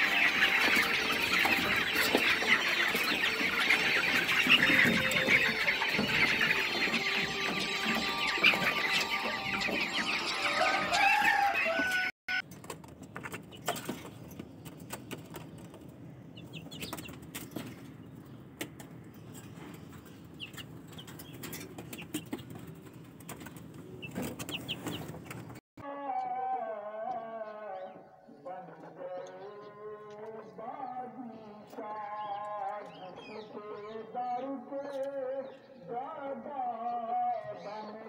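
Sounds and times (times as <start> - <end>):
chickens clucking and squawking: 0.0 - 12.4, 13.0 - 25.6
rustling of caged birds: 0.0 - 25.6.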